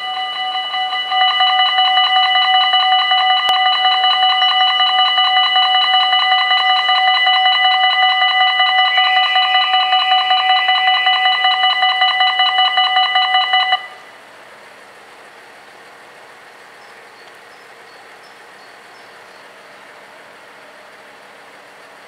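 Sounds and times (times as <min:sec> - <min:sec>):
level crossing bells ringing: 0:00.0 - 0:14.0.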